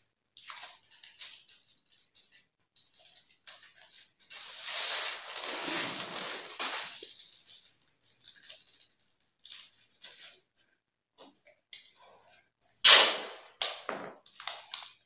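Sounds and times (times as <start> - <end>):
thin paper crinkling and rustling: 0.4 - 10.4.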